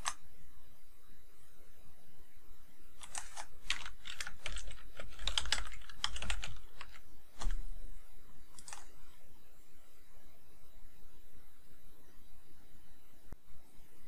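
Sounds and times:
typing on a keyboard: 3.0 - 7.6, 8.6 - 8.9.

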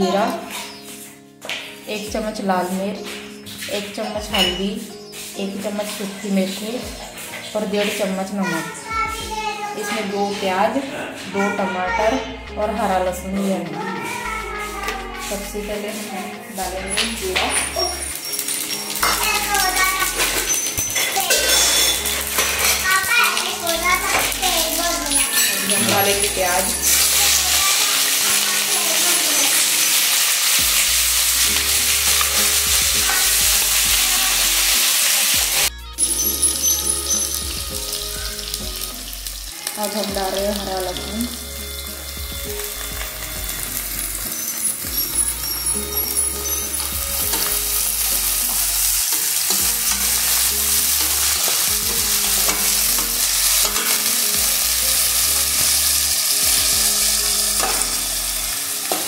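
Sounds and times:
onions sizzling in hot oil: 0.0 - 8.8, 13.8 - 59.0
metal spoon stirring: 17.0 - 22.9, 25.1 - 28.6, 36.0 - 37.5, 44.2 - 59.0
metal ladle scraping a pan: 25.1 - 27.4, 44.2 - 54.7.

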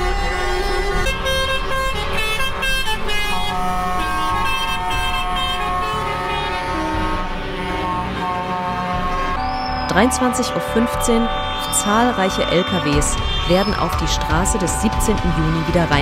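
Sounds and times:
traffic noise: 0.0 - 16.0
vehicle horns honking: 0.0 - 16.0.

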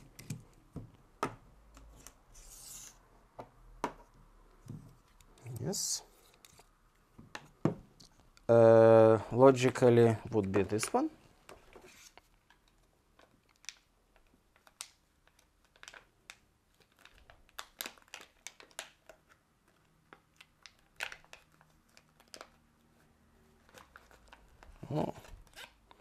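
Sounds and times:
plastic bag crinkling: 14.6 - 22.6.

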